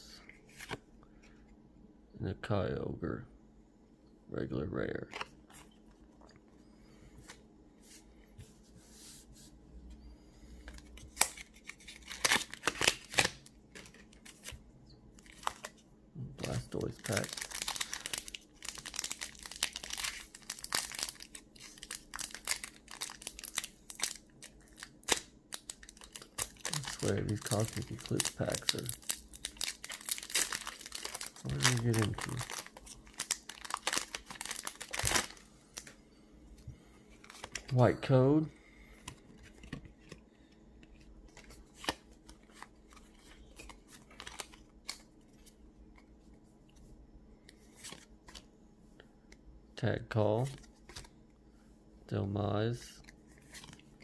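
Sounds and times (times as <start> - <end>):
cards flicking and rustling: 10.7 - 14.6, 50.5 - 51.1
foil wrapper crinkling: 16.4 - 35.9.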